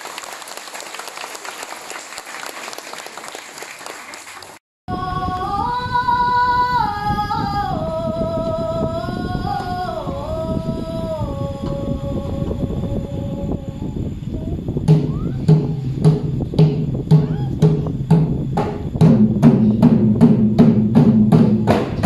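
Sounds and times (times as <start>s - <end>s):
audience applauding: 0.0s - 4.6s
woman singing long held notes: 4.9s - 14.4s.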